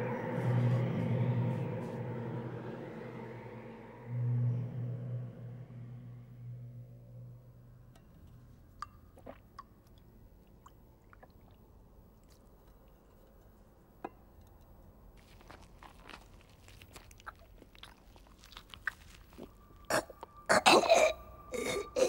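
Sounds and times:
low hum: 0:00.0 - 0:10.5
animal chewing from a bowl: 0:15.2 - 0:20.4.

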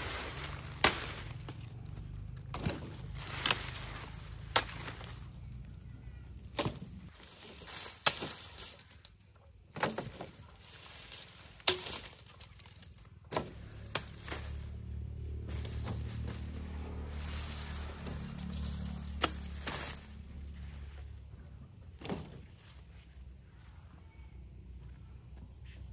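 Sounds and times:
blade chopping sugarcane: 0:00.3 - 0:01.7, 0:02.5 - 0:05.2, 0:06.5 - 0:07.0, 0:11.6 - 0:12.2, 0:13.3 - 0:14.6, 0:18.0 - 0:20.1.

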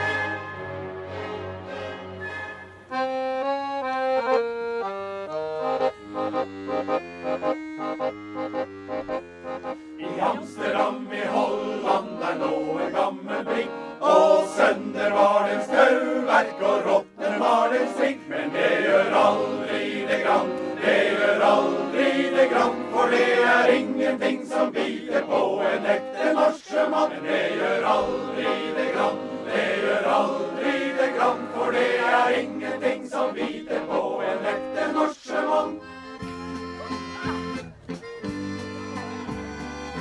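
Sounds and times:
accordion melody: 0:00.0 - 0:40.0
male choir singing: 0:10.0 - 0:35.9.

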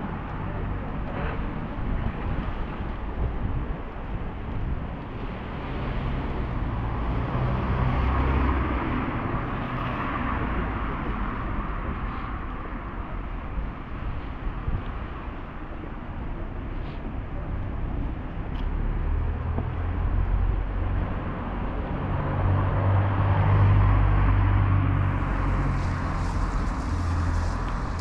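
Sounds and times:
vehicle engine noise: 0:00.0 - 0:28.0
tyres hissing on wet road: 0:23.5 - 0:28.0.

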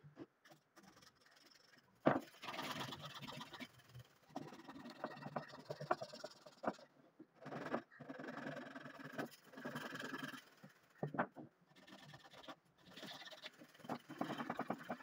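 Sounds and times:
small wooden clicks: 0:04.3 - 0:15.0.

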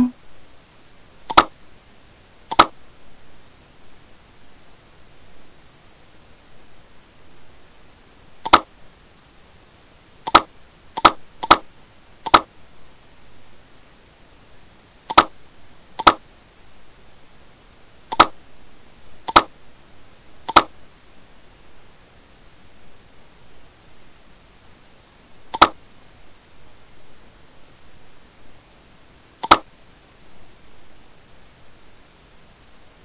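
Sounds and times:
faint steady hiss: 0:00.0 - 0:33.0
computer mouse clicks: 0:01.3 - 0:01.5, 0:02.5 - 0:02.8, 0:08.4 - 0:08.7, 0:10.2 - 0:12.5, 0:15.1 - 0:15.3, 0:16.0 - 0:16.2, 0:18.1 - 0:18.4, 0:19.3 - 0:19.5, 0:20.5 - 0:20.7, 0:25.5 - 0:25.8, 0:29.4 - 0:29.7.

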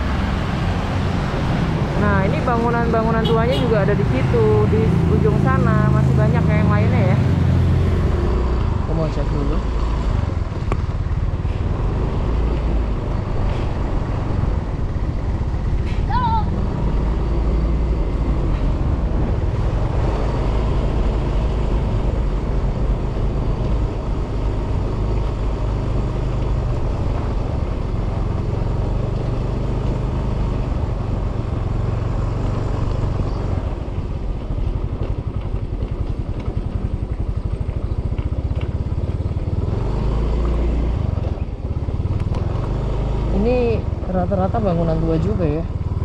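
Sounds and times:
motorcycle engine rumbling: 0:00.0 - 0:46.0.

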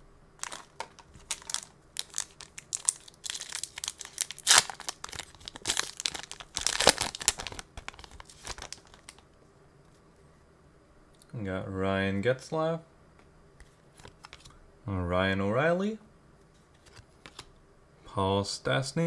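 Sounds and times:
foil wrapper crinkling and tearing: 0:00.4 - 0:09.2.

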